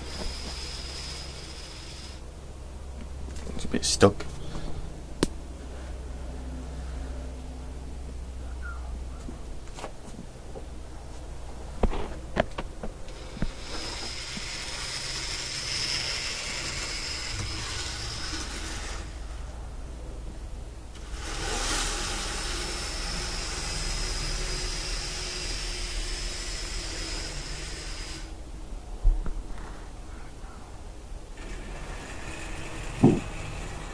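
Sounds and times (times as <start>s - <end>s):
model train motor whine: 0.0s - 2.2s, 13.1s - 19.4s, 20.9s - 28.4s, 31.4s - 33.9s
model train wheel hiss: 0.0s - 2.2s, 13.1s - 19.2s, 21.0s - 28.4s, 31.4s - 33.9s
sharp knocks: 33.0s - 33.4s.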